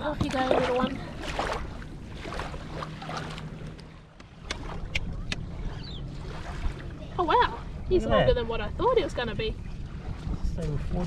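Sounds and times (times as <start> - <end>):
wind buffeting microphone: 4.4 - 11.0.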